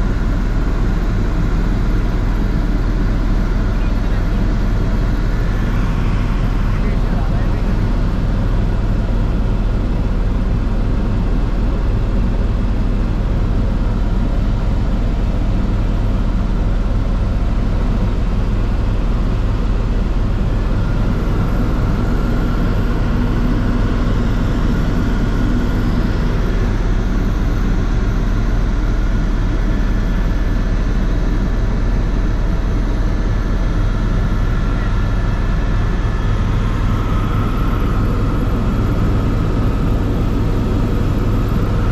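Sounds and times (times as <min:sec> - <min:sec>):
helicopter rotor and engine drone: 0:00.0 - 0:41.9
faint high whine: 0:19.7 - 0:41.9.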